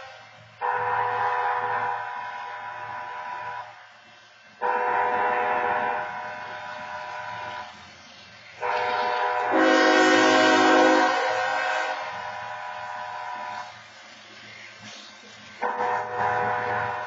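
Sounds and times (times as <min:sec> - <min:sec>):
locomotive air horn blasts: 0:00.0 - 0:03.8, 0:04.6 - 0:07.8, 0:08.6 - 0:13.8, 0:15.6 - 0:17.0.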